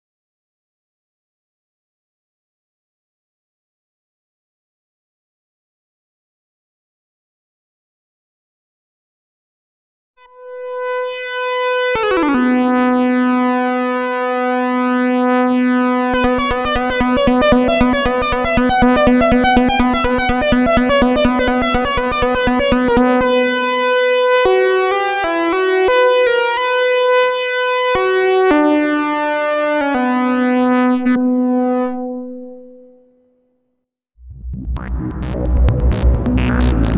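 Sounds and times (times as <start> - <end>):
analog synthesizer notes: 10.2 - 32.8, 34.2 - 36.9.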